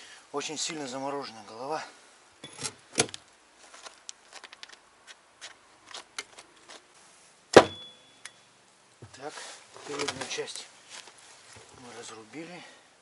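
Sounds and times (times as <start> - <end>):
hatchet chopping: 7.6 - 7.9
short metallic ring: 7.6 - 8.6.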